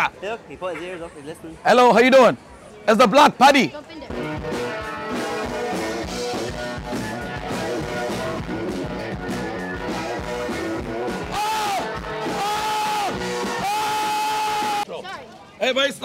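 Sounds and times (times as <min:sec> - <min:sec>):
live rock band playing: 0:04.1 - 0:13.7.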